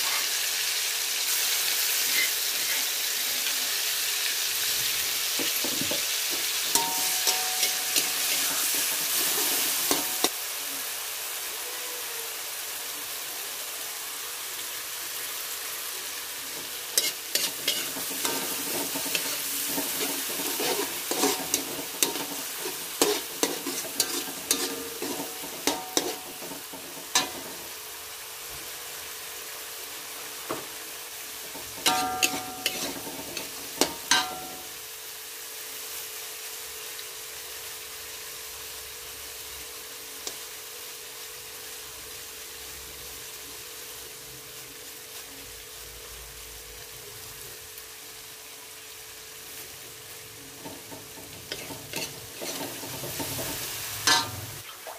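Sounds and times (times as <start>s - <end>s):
spice paste sizzling in oil: 0.0s - 54.8s
metal spatula scraping wok: 2.0s - 2.9s, 5.4s - 10.4s, 16.4s - 27.8s, 31.3s - 34.7s, 50.5s - 54.6s.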